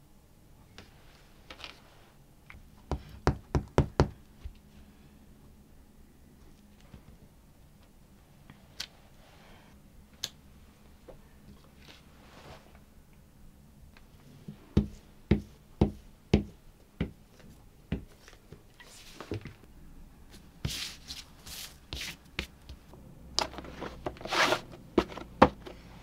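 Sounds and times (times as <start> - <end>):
paper rustling and rubbing: 20.6 - 22.3, 23.6 - 24.7.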